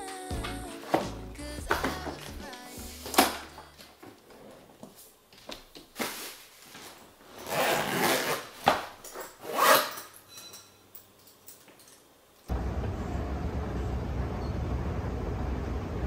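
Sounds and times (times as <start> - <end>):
suitcase scraping and rubbing: 6.8 - 10.0.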